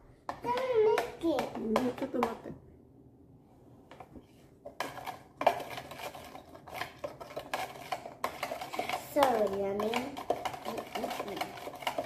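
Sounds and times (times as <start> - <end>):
spoon stirring in plastic pitcher: 3.9 - 12.0.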